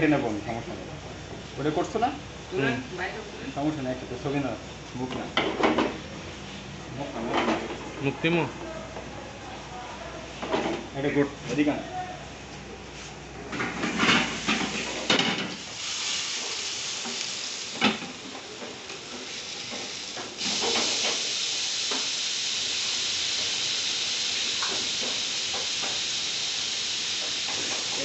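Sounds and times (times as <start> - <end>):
steak sizzling in grill pan: 14.2 - 28.0.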